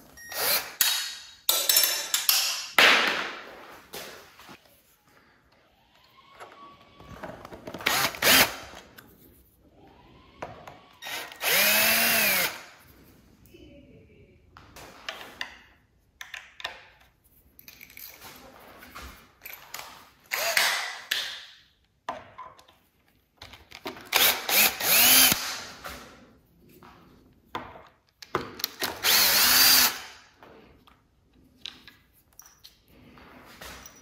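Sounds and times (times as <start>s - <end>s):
cordless drill driving screws: 0.3s - 0.8s, 7.7s - 8.8s, 11.0s - 12.7s, 20.3s - 20.9s, 24.1s - 25.6s, 28.8s - 30.2s.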